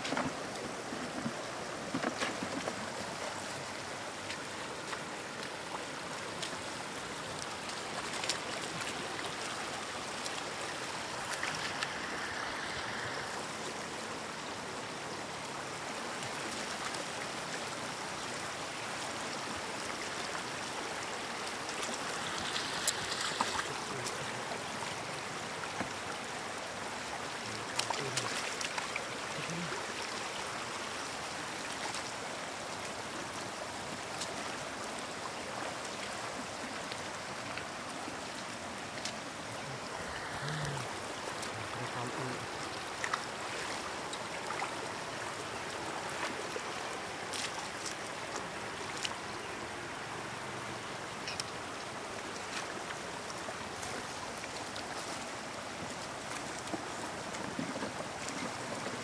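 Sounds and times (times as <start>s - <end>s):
water running over stones: 0.0s - 59.0s
boots splashing through water: 46.1s - 49.3s.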